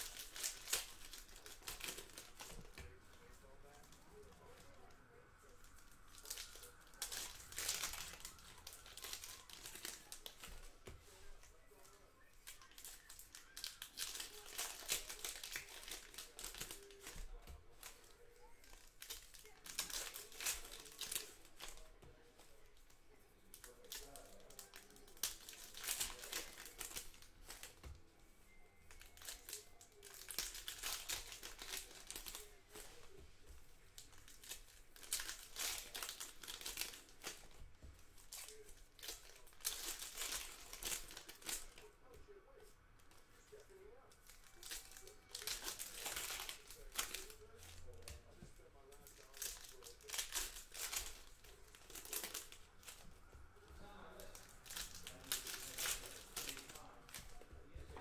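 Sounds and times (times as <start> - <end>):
foil wrappers tearing and crinkling: 0.0 - 22.6, 23.4 - 27.9, 28.9 - 33.2, 34.0 - 41.9, 43.5 - 53.1, 54.1 - 57.4.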